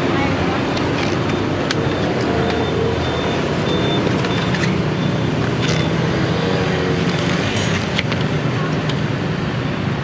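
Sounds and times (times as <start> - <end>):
road traffic: 0.0 - 10.0.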